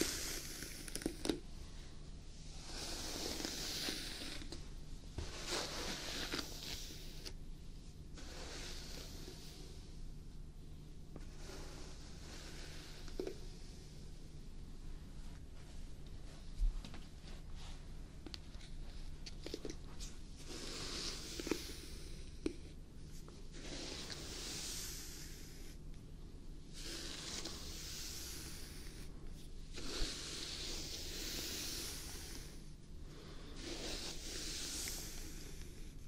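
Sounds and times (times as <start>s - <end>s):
hairbrush strokes through hair: 2.4s - 4.5s, 5.2s - 7.3s, 23.5s - 25.5s, 26.8s - 29.1s, 29.8s - 32.6s, 33.3s - 35.6s.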